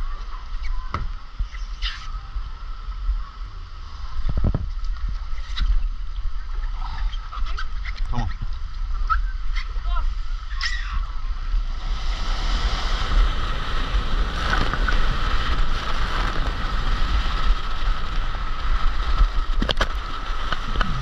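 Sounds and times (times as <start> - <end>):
wind buffeting microphone: 2.1 - 21.0
water rushing: 20.0 - 21.0.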